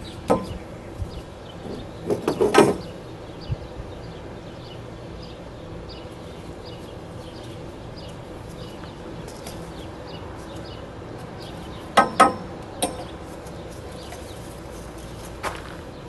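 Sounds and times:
sharp clicks and knocks: 1.6 - 2.9, 11.9 - 13.2.

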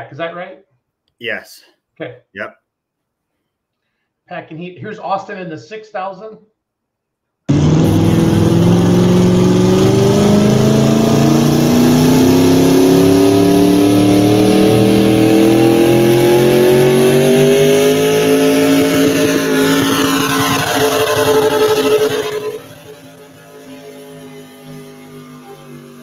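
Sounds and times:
tractor engine running hard: 7.5 - 26.0.

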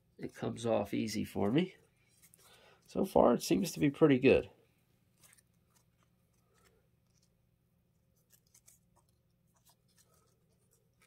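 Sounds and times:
tape crackling as it unwinds: 5.1 - 11.0.

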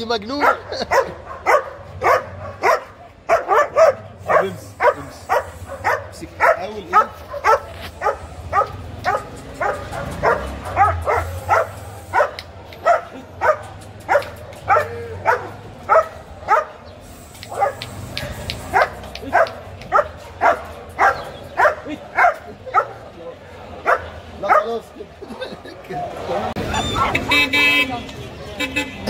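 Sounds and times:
dog barking: 0.4 - 16.9, 17.5 - 23.1, 23.8 - 24.8.

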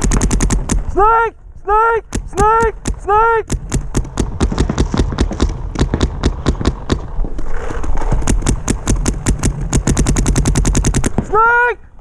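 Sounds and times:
paintball marker firing rapidly: 0.0 - 0.9, 2.1 - 7.2, 8.1 - 11.4.

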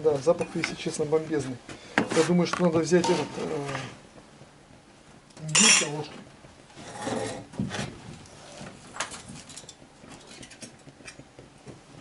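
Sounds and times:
muffled rustle: 0.0 - 12.0.

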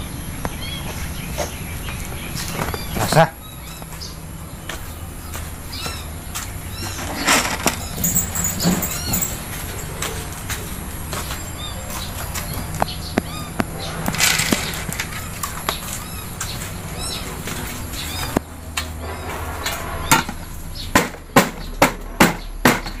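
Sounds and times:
clatter and handling noise: 6.4 - 16.7.

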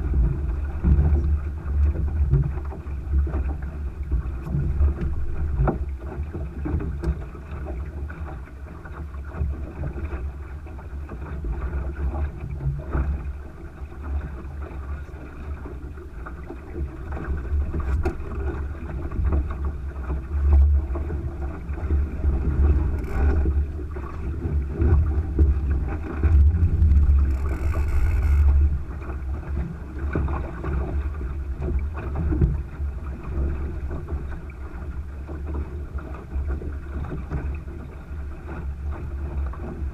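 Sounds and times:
water rushing along hull: 0.0 - 39.9
wind buffeting microphone: 15.5 - 34.8.

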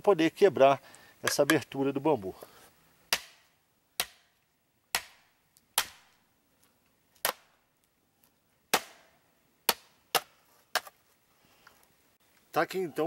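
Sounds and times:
knife striking bamboo: 3.1 - 6.1, 7.2 - 7.6, 8.7 - 10.9.

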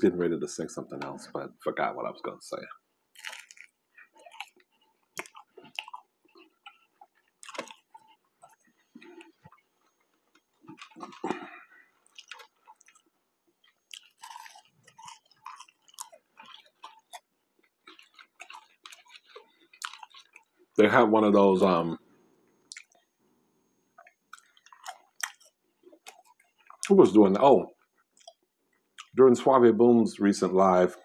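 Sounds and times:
person chewing food: 2.6 - 20.8, 22.6 - 23.1, 24.0 - 27.0, 27.8 - 29.2.

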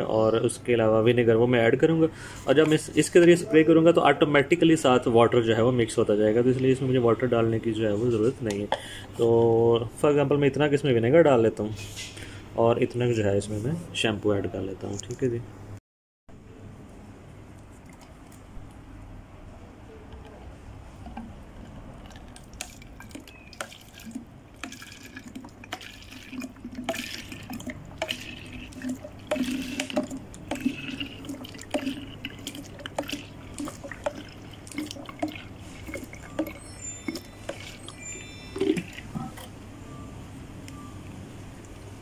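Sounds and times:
vinegar glugging and dripping: 21.0 - 39.6.

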